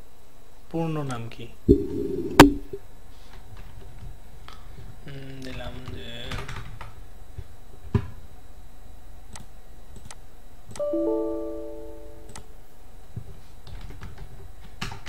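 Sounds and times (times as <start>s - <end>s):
computer error chime: 10.8s - 12.4s.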